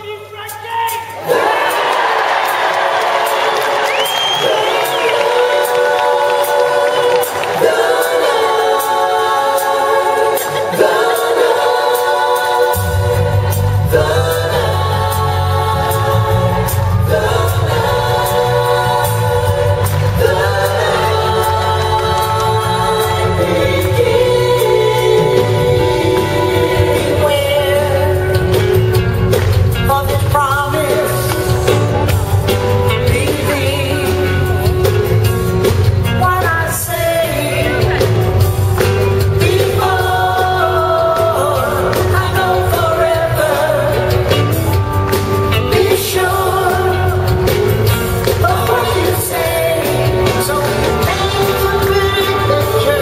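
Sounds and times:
sung harmonies: 0.0s - 53.0s
live band playing soul: 0.5s - 53.0s
percussion hits: 0.5s - 53.0s
bass line: 7.6s - 53.0s
man singing: 17.0s - 29.0s, 29.7s - 44.8s, 45.6s - 53.0s.

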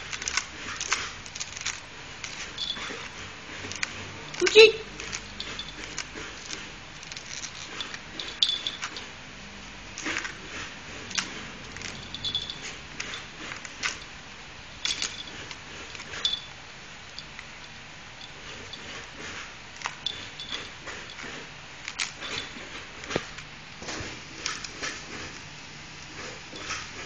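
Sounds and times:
dog teeth scraping coconut husk: 0.0s - 9.2s.

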